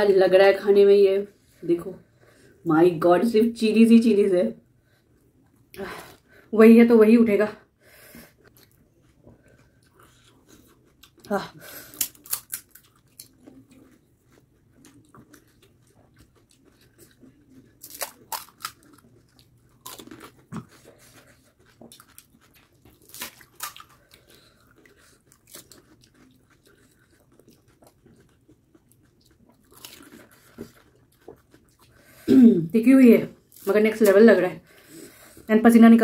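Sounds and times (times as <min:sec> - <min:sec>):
chewing: 0:08.4 - 0:32.2.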